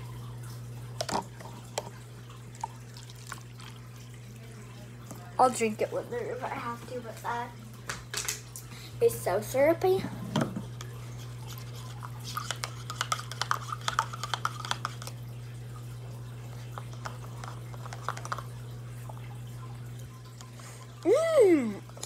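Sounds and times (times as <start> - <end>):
spoon stirring in plastic cup: 1.0 - 2.0, 10.8 - 15.2, 16.5 - 19.2.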